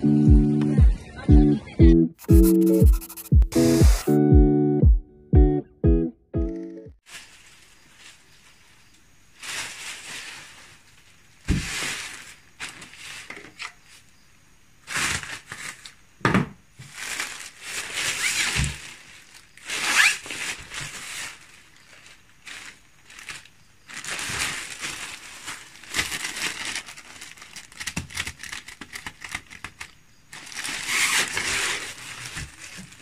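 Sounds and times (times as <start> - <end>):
plastic bag rustling and crinkling: 7.0 - 14.1, 14.8 - 33.0.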